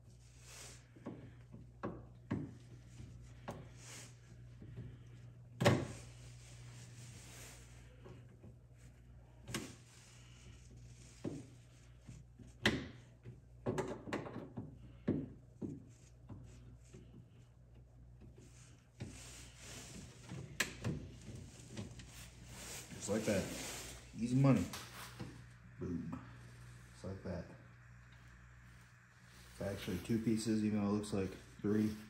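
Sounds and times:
low hum: 0:19.4 - 0:32.0.

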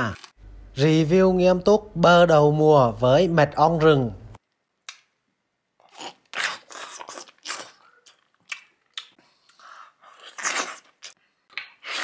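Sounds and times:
person biting and chewing: 0:05.8 - 0:12.0.

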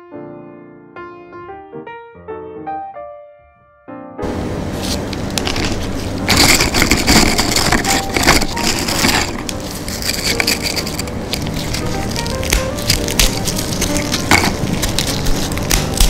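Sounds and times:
biscuits snapping and crunching: 0:05.2 - 0:16.0.

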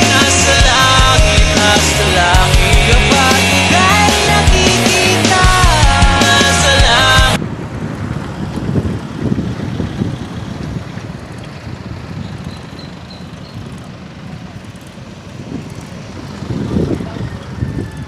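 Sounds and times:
road rumble: 0:00.0 - 0:18.0
wind buffeting microphone: 0:07.4 - 0:18.0.

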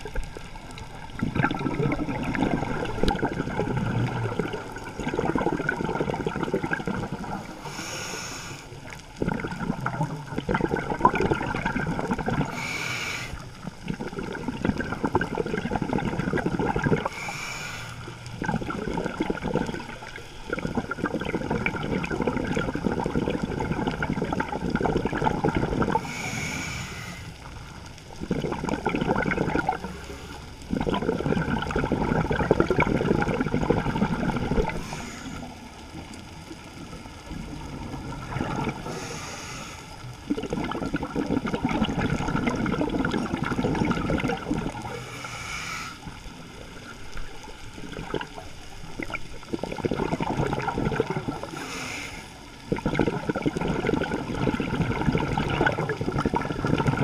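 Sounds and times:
exhaled bubbles rushing: 0:00.0 - 0:08.0, 0:08.7 - 0:17.4, 0:18.0 - 0:26.3, 0:27.4 - 0:39.2, 0:40.0 - 0:45.1, 0:46.1 - 0:51.8, 0:52.5 - 0:57.0
regulator hissing inhale: 0:07.4 - 0:08.9, 0:12.5 - 0:13.6, 0:17.0 - 0:18.2, 0:26.0 - 0:27.5, 0:29.9 - 0:30.6, 0:34.7 - 0:35.8, 0:38.8 - 0:40.1, 0:44.9 - 0:46.6, 0:51.4 - 0:52.6.

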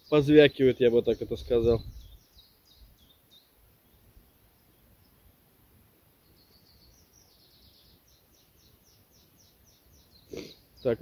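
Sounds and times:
small bird calling: 0:00.0 - 0:05.3, 0:06.2 - 0:11.0.

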